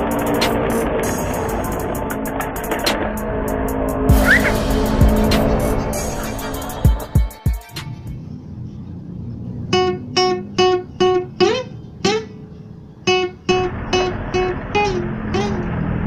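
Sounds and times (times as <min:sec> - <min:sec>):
low sustained backing: 0:00.0 - 0:16.0
plucked guitar riff: 0:04.0 - 0:08.2, 0:09.6 - 0:16.0.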